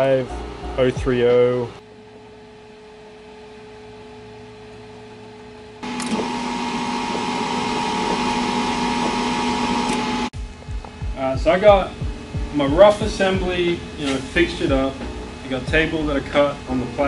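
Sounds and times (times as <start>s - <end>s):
faint machine hum: 0.0s - 17.0s
wire-feed motor whine: 0.0s - 17.0s
welder hiss: 11.2s - 16.8s.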